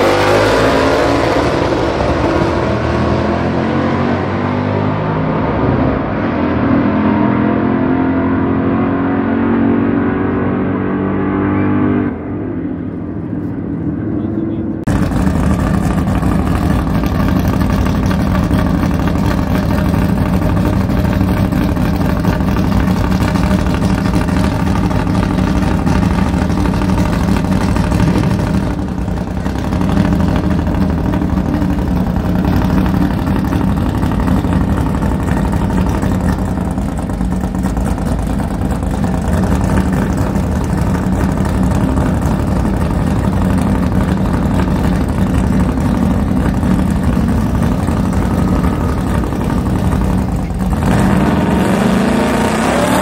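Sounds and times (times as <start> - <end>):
car engine idling: 12.7 - 53.0.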